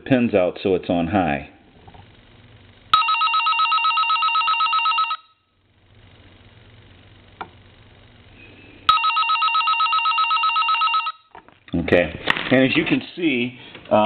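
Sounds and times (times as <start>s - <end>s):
telephone electronic trill ringing: 2.9s - 5.5s, 8.9s - 11.3s.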